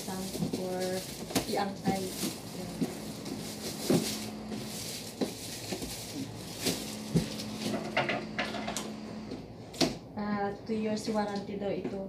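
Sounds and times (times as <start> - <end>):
plastic straps rustling and scraping: 0.0 - 8.0.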